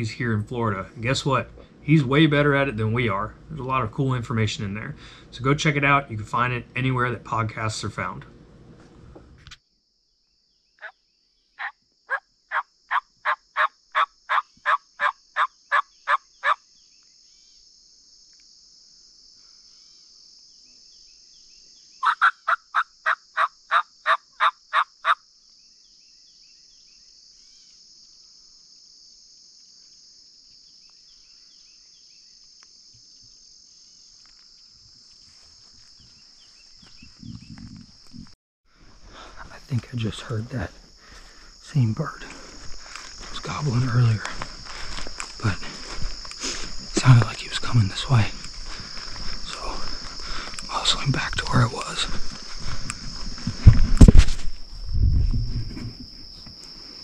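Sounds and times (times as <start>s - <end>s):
turkey hen yelping: 11.6s - 16.6s, 22.0s - 25.2s
steady high hiss: 25.3s - 57.0s.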